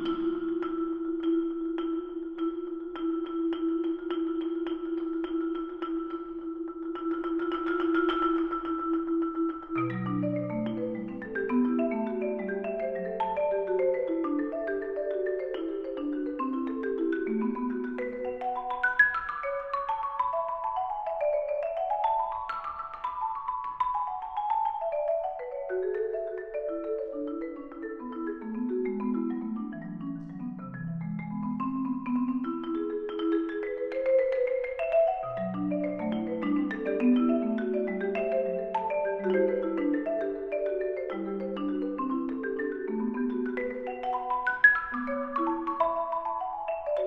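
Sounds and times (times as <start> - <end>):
marimbas playing fast patterns: 0.0 - 47.0.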